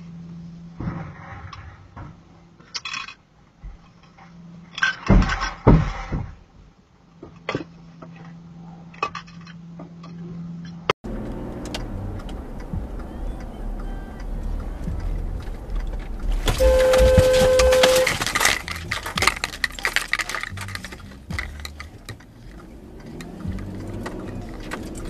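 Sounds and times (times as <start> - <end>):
car interior driving noise: 7.1 - 25.0
car horn: 11.1 - 19.4.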